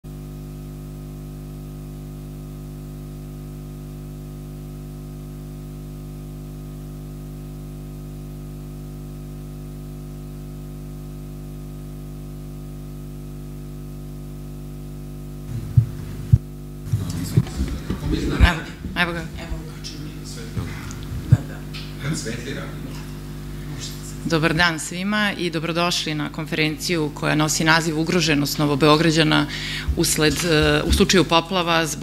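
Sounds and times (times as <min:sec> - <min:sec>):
electrical hum and hiss: 0:11.7 - 0:32.0.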